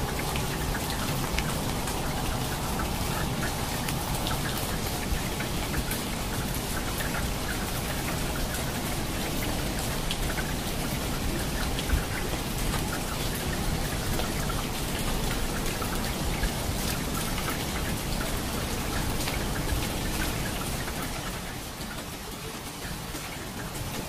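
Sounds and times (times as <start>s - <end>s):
rain drops on hard surface: 0.0s - 24.0s.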